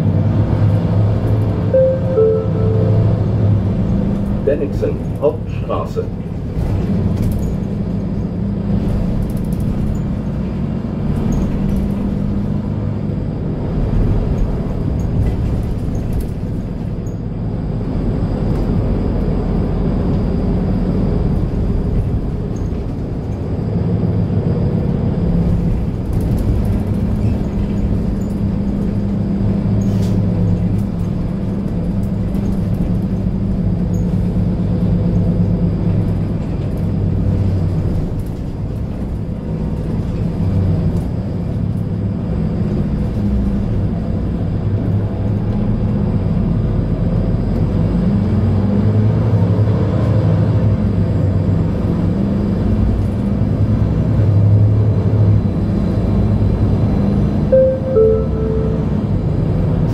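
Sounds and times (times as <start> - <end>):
bus engine idling: 0.0 - 10.4.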